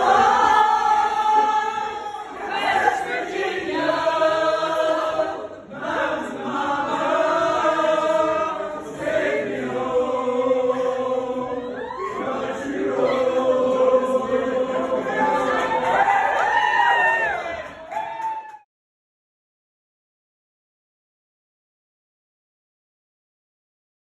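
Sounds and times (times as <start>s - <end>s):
group singing a cappella: 0.0s - 16.2s.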